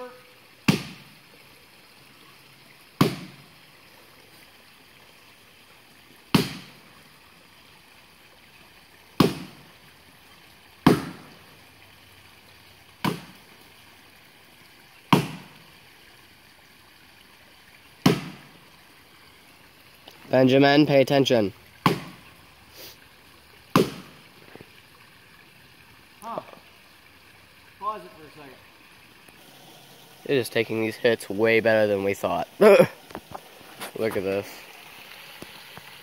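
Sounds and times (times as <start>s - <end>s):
axe chopping into tree trunk: 0.7s - 1.1s, 3.0s - 3.4s, 6.3s - 6.8s, 9.2s - 9.6s, 10.8s - 11.3s, 13.0s - 13.4s, 15.1s - 15.5s, 18.0s - 18.4s, 21.8s - 22.2s, 23.7s - 24.2s.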